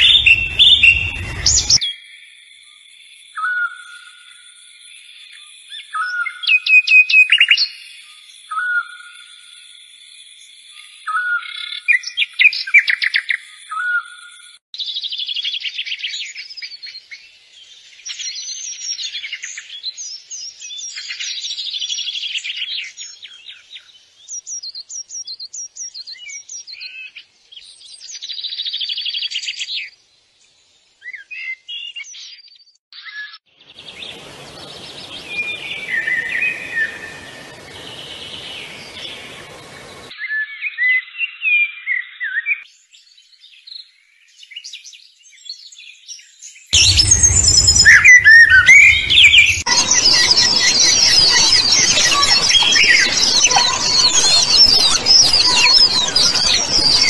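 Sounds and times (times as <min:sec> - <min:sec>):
small birds chirping: 0:00.0 - 0:01.8, 0:16.2 - 0:40.2, 0:42.0 - 0:57.0.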